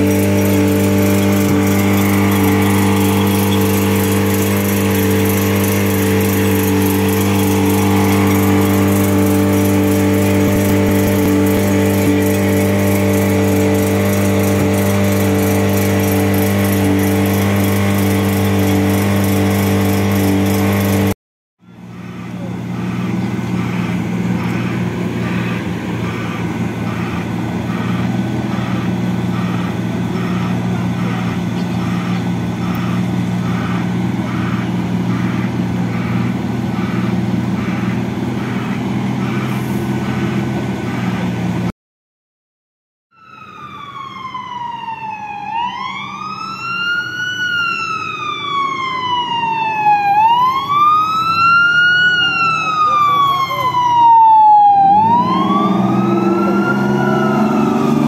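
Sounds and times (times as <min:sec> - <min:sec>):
fire engine siren wailing: 0:00.0 - 0:41.7, 0:43.1 - 0:58.0
fire engines running: 0:00.0 - 0:41.7, 0:43.2 - 0:58.0.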